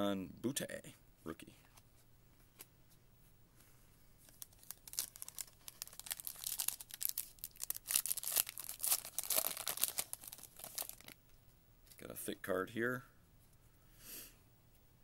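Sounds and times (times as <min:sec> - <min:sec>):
foil wrapper tearing and crinkling: 0:04.2 - 0:11.2.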